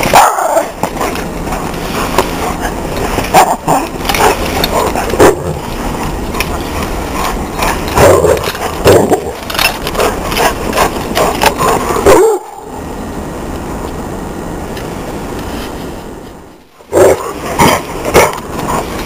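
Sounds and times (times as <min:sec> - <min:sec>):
dogs barking: 0:00.0 - 0:12.7, 0:16.9 - 0:19.0
steady low rumble: 0:00.0 - 0:19.0.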